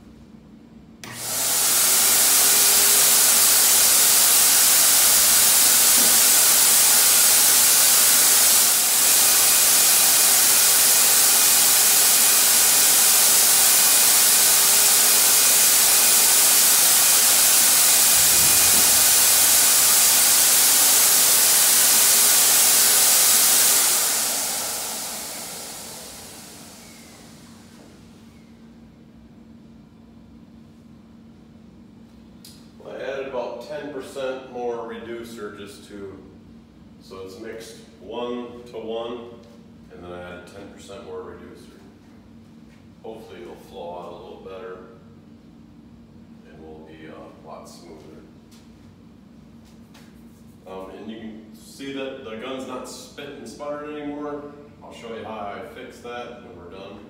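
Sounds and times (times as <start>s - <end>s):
sprayer turbine motor air rush: 1.0s - 28.5s.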